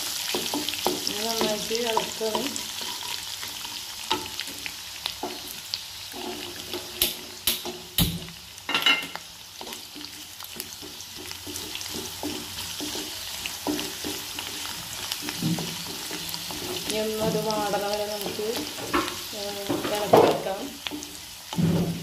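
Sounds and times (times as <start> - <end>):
spatula stirring and scraping: 0.0 - 7.9, 9.5 - 22.0
spices sizzling in hot oil: 0.0 - 22.0
spatula knocking against pan: 0.3 - 2.5, 9.6 - 14.5.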